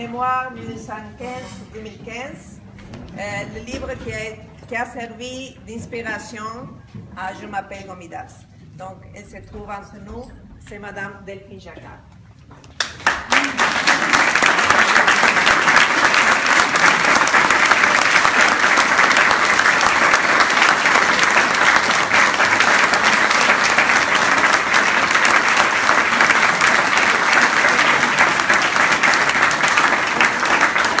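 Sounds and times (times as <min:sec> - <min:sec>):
audience applauding: 0:12.8 - 0:31.0.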